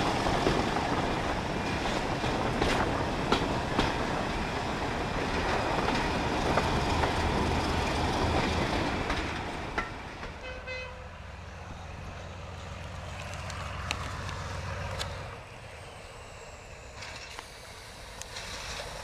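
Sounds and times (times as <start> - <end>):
train running on rails: 0.0 - 19.0
diesel engine droning: 10.3 - 19.0
train horn toot: 10.4 - 11.2.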